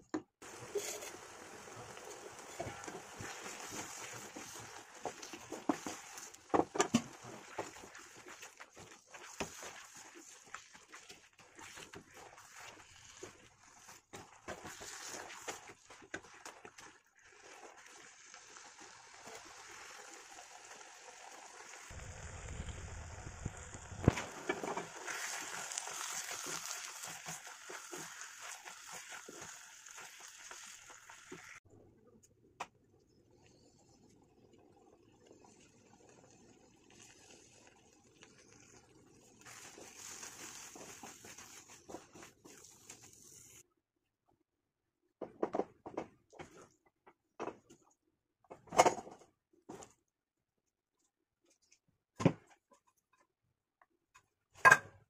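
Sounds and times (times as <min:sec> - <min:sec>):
faint simmering hiss: 0:00.4 - 0:10.6, 0:17.3 - 0:32.3, 0:33.0 - 0:43.6
wooden spatula scraping a pan: 0:00.4 - 0:18.3, 0:24.0 - 0:31.6, 0:39.4 - 0:43.6
vegetable mash sizzling in a pan: 0:00.4 - 0:31.6, 0:36.6 - 0:43.6.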